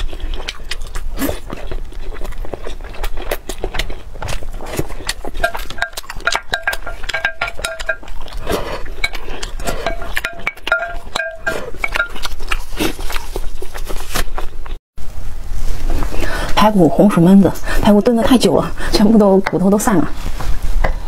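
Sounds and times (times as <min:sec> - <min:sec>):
mouth and eating sounds: 0:00.0 - 0:14.8
spoon scraping glass bowl: 0:05.3 - 0:13.8.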